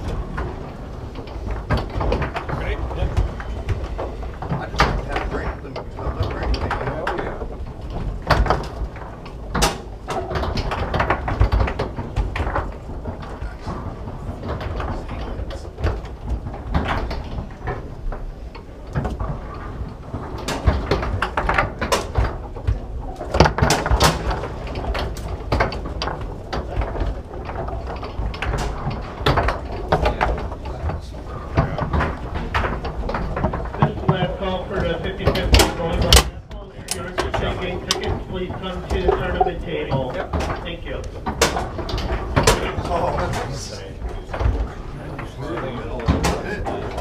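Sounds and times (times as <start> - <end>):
foosball clacks and knocks: 0.0 - 47.0
rods sliding and banging: 36.9 - 47.0.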